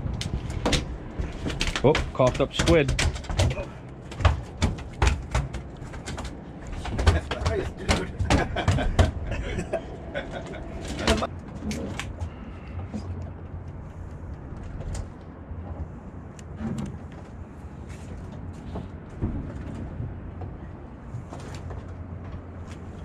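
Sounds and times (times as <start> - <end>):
light clicks and knocks: 0.2 - 9.2.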